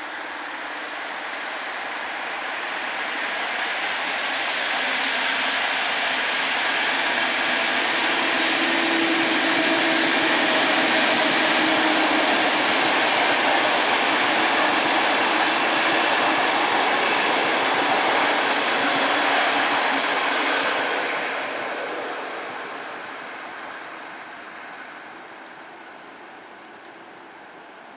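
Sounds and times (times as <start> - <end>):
train wheels rolling on rails: 0.0 - 27.9.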